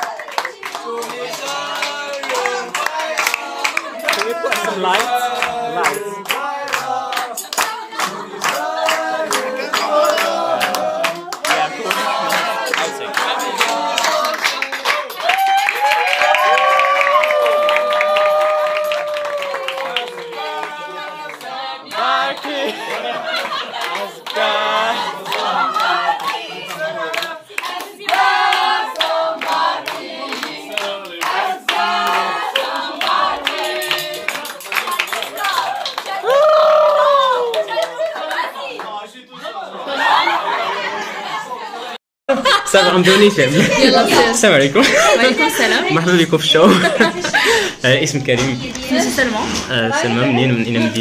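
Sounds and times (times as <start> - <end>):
group of people singing: 0.0 - 15.4, 18.1 - 51.0
people clapping in time: 0.0 - 39.0
hands clapping in time: 29.0 - 38.4.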